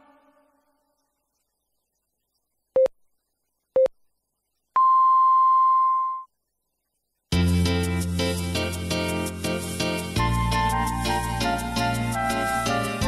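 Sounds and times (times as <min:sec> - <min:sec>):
radio time signal beeps: 0:04.8 - 0:06.3.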